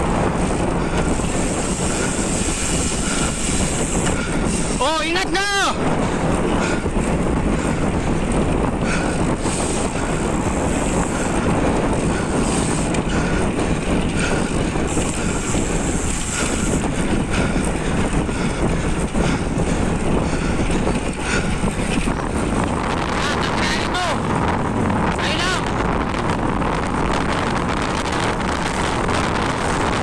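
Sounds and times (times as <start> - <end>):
bicycle tyres rolling on concrete: 0.0 - 30.0
wind rushing across microphone: 0.0 - 30.0.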